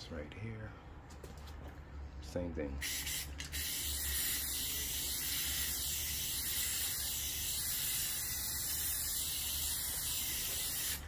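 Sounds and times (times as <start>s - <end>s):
aerosol spray can hissing: 2.8s - 11.0s.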